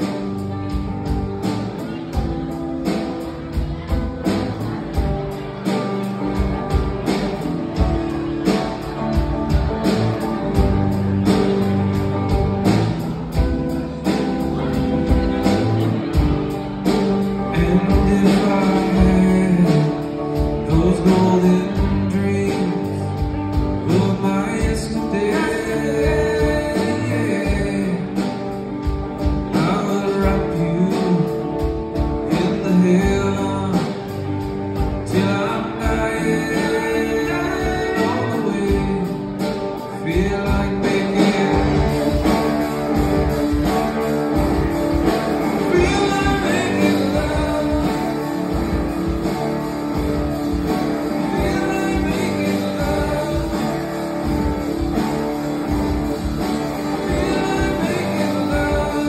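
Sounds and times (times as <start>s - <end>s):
bass guitar: 0.0s - 59.0s
drums keeping steady beat: 0.0s - 59.0s
electric guitar: 0.0s - 59.0s
man singing lead vocals: 12.6s - 59.0s.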